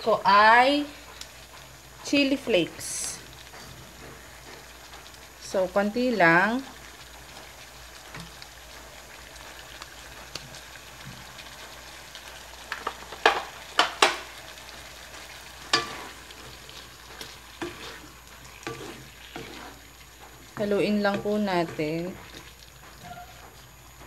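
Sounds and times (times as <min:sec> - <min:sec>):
food sizzling in wok: 0:00.0 - 0:24.0
wooden spatula stirring in wok: 0:00.3 - 0:24.0.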